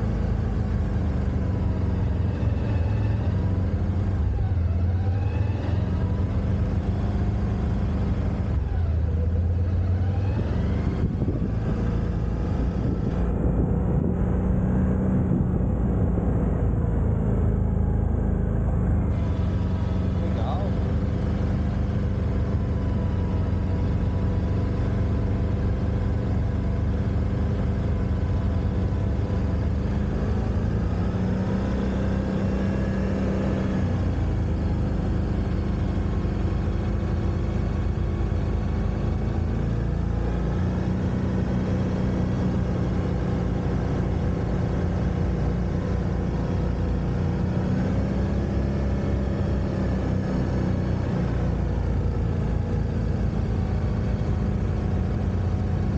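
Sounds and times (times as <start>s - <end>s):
quad bike engine revving: 0.0s - 37.9s.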